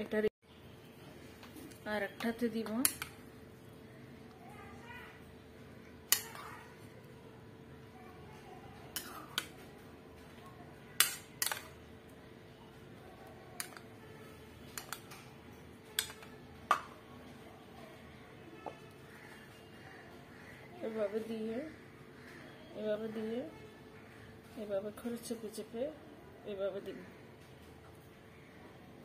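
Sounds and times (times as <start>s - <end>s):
spoon clinking against a bowl: 11.0s - 11.7s, 13.6s - 13.9s, 14.7s - 15.0s.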